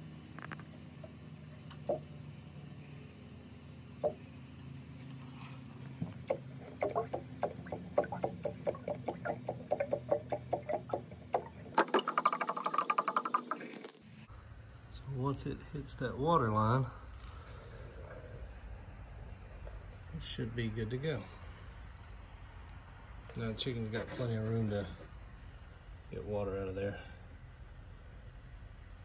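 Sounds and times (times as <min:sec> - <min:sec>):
steady low hum: 0:00.0 - 0:29.0
water jug glugging: 0:06.0 - 0:14.0.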